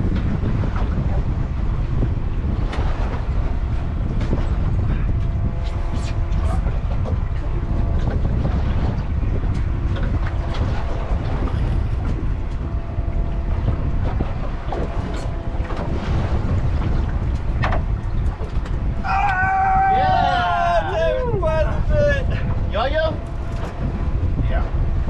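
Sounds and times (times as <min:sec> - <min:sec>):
wind buffeting microphone: 0:00.0 - 0:25.0.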